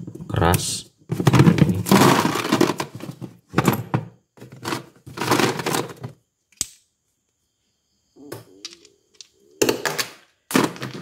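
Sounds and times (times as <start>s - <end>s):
ice cubes clattering: 1.2s - 3.8s, 4.5s - 6.2s, 9.8s - 11.0s.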